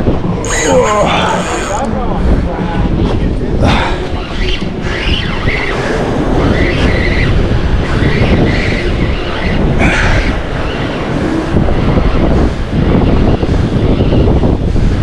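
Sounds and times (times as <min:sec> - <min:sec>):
strong wind rumbling on microphone: 0:00.0 - 0:15.0.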